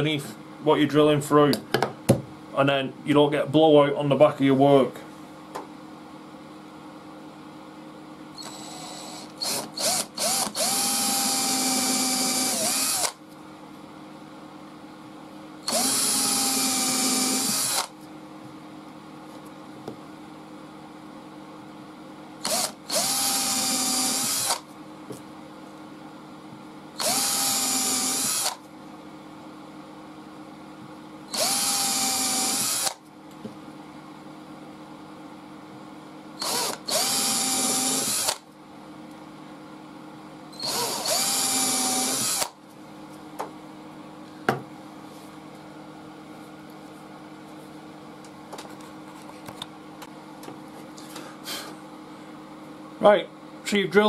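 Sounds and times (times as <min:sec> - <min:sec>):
cordless drill drilling into wood: 0:08.4 - 0:13.2, 0:15.7 - 0:17.9, 0:22.4 - 0:24.6, 0:27.0 - 0:28.6, 0:31.3 - 0:33.0, 0:36.4 - 0:38.4, 0:40.6 - 0:42.6.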